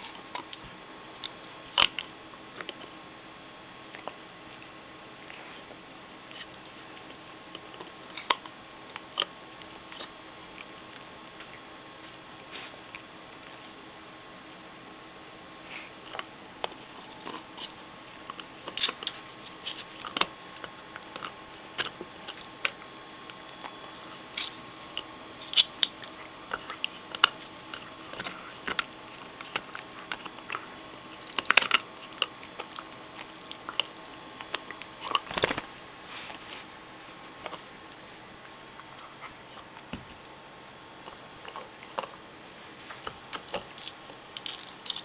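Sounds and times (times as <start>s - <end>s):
dog chewing bone: 0.0s - 3.1s, 16.0s - 36.4s, 37.1s - 45.0s.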